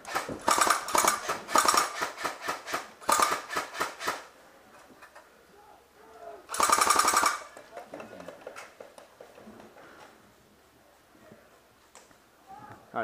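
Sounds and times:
airsoft rifle full-auto bursts: 0:00.0 - 0:04.3, 0:06.5 - 0:07.5.

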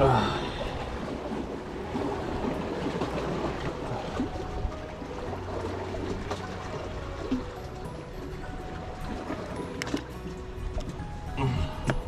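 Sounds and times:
sea water washing among rocks: 0:00.0 - 0:08.0.

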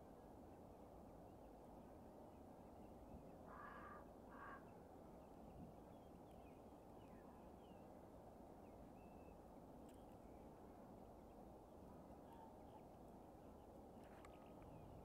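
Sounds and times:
distant bird calls: 0:03.4 - 0:04.7.

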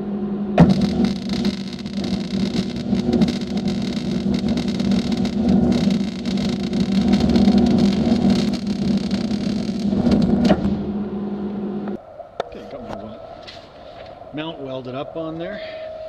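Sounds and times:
steady low hum: 0:00.0 - 0:16.0
welding arc crackling: 0:00.6 - 0:11.0.

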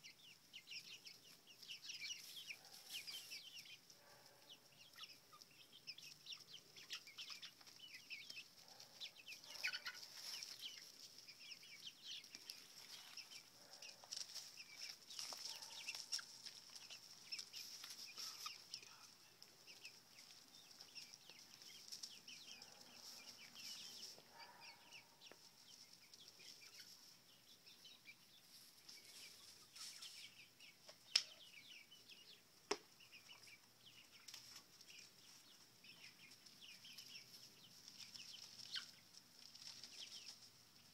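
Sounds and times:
chickens peeping and clucking: 0:00.0 - 0:40.9.

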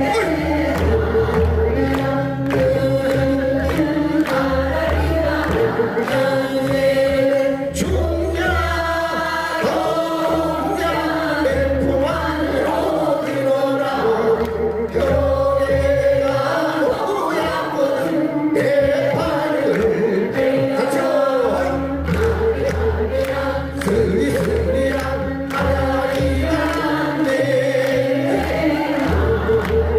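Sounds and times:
group singing folk song in unison: 0:00.0 - 0:29.9
low musical backing: 0:00.0 - 0:29.9.

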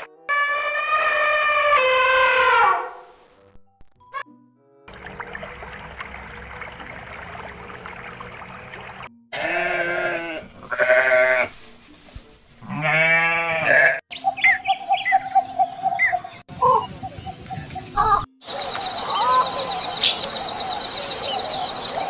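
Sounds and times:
sheep bleating: 0:09.3 - 0:11.6, 0:12.6 - 0:14.0
chirping bird calls: 0:14.1 - 0:22.0.

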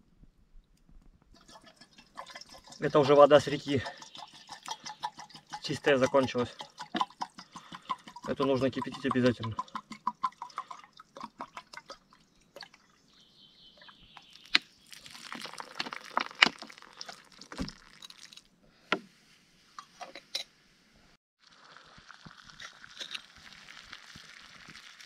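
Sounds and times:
water pouring into a container: 0:01.3 - 0:13.2, 0:14.2 - 0:18.5, 0:21.4 - 0:25.0.

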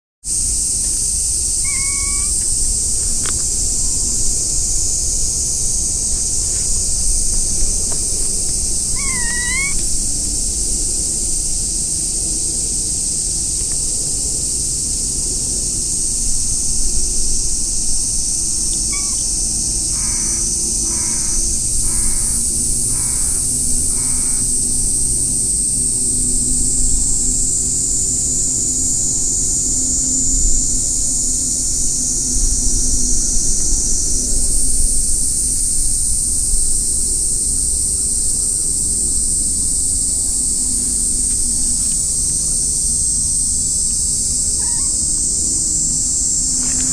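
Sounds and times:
steady high-pitched hiss: 0:00.3 - 0:46.9
crow cawing: 0:01.6 - 0:03.7, 0:06.1 - 0:10.1, 0:18.9 - 0:24.6, 0:44.6 - 0:45.0.

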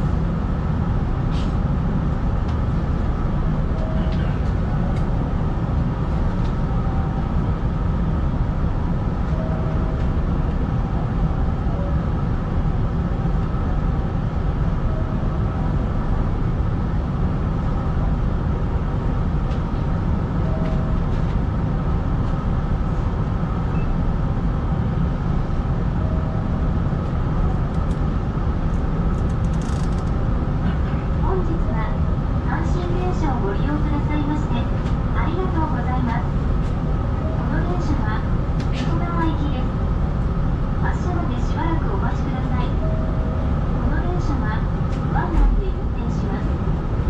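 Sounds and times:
train cab rumble and hum: 0:00.0 - 0:47.0.

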